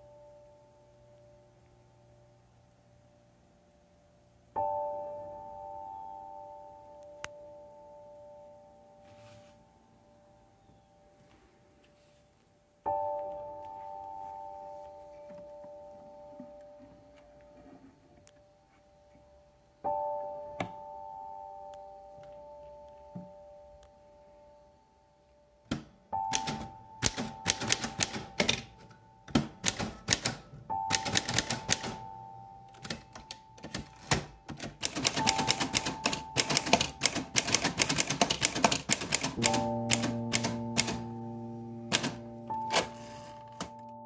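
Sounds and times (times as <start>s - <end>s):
soft music with held notes: 0.0s - 44.0s
manual typewriter typing: 25.7s - 32.0s, 32.7s - 41.0s, 41.9s - 43.9s.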